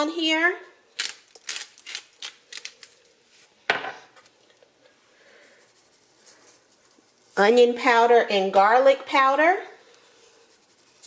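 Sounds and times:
spice shaker shaking: 0:05.3 - 0:07.9, 0:10.0 - 0:11.0.

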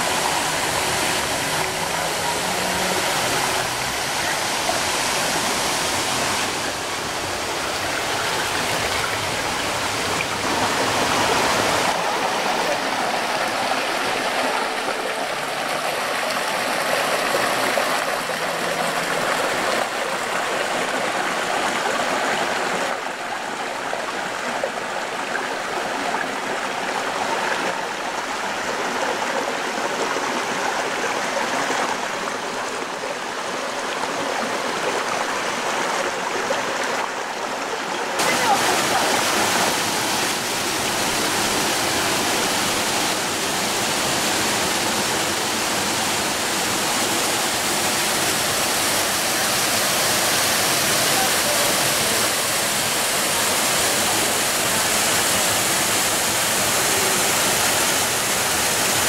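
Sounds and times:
stream running over stones: 0:00.0 - 0:59.0.

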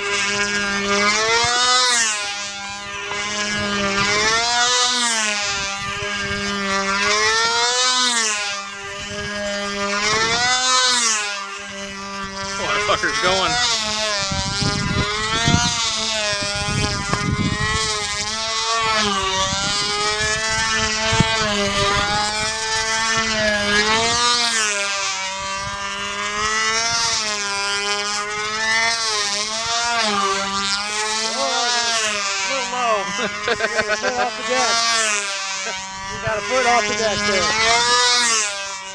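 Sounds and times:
model airplane engine running: 0:00.0 - 0:38.9
wind buffeting microphone: 0:02.7 - 0:04.6, 0:05.4 - 0:07.1, 0:08.8 - 0:10.7, 0:11.8 - 0:24.4, 0:29.2 - 0:38.3.

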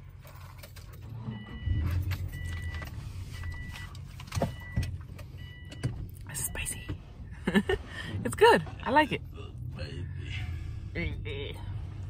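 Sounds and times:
car engine humming: 0:00.0 - 0:12.0
car warning chime dinging: 0:01.0 - 0:07.1.

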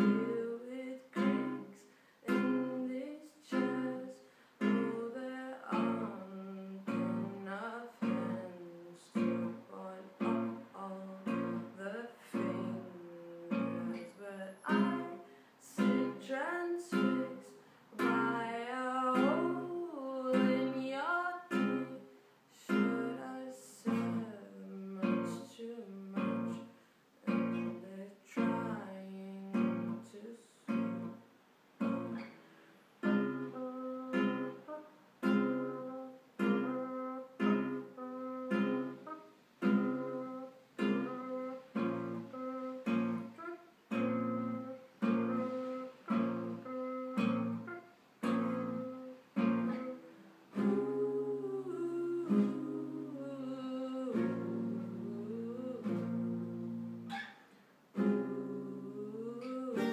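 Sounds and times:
classical guitar plucked chords: 0:00.0 - 0:59.9.

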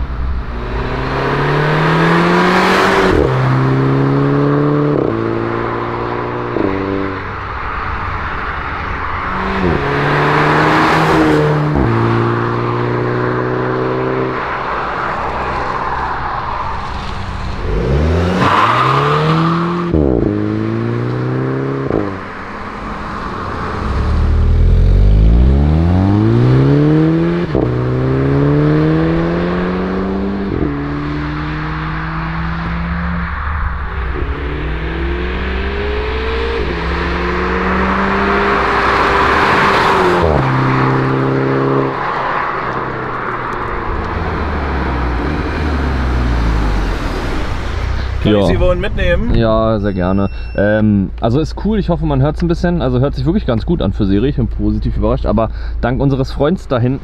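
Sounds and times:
car engine accelerating: 0:00.0 - 0:55.1.

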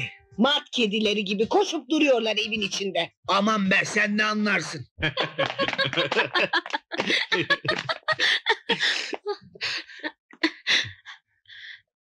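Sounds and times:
man and woman laughing: 0:05.0 - 0:10.1.

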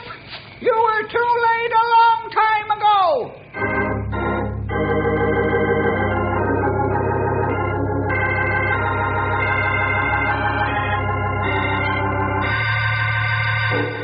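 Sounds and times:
organ chords: 0:03.4 - 0:14.0.

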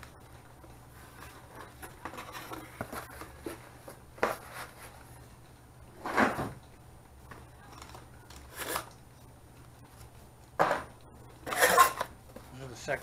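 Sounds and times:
rustling cardboard and plastic: 0:00.2 - 0:05.4.

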